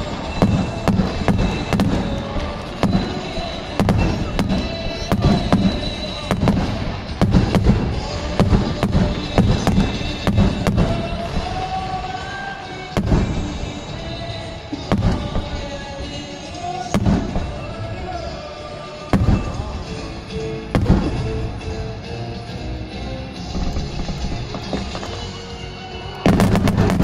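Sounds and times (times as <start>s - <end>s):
firework shells bursting: 0.0s - 18.2s, 19.0s - 21.9s, 23.4s - 25.5s, 26.3s - 27.0s
music playing: 0.0s - 27.0s.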